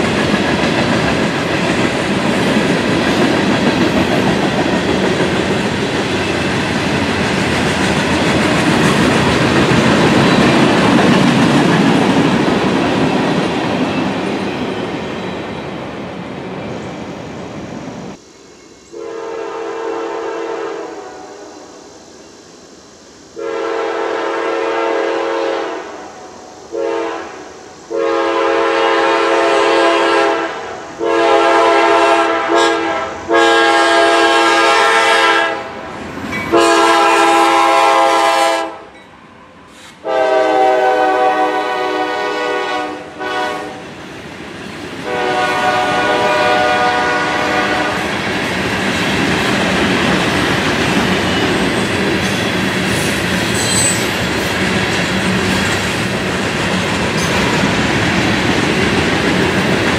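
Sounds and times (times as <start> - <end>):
freight train rumbling by: 0.0 - 59.9
locomotive air horn blasts: 18.9 - 21.5, 23.4 - 35.8, 36.5 - 38.9, 40.0 - 43.8, 45.0 - 48.1.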